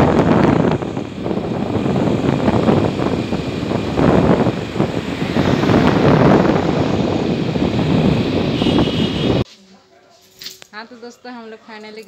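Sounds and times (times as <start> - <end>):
scooter engine: 0.0 - 9.4
wind buffeting microphone: 0.0 - 9.4
road noise: 0.0 - 9.5.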